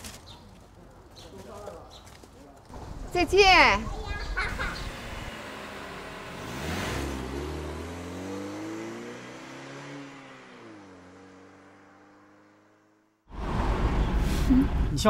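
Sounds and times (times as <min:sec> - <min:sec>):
car engine accelerating: 0:04.7 - 0:14.9.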